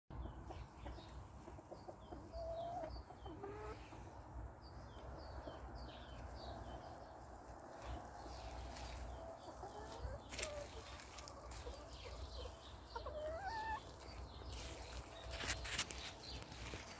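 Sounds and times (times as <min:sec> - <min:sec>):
chickens clucking and calling: 0:00.1 - 0:16.9.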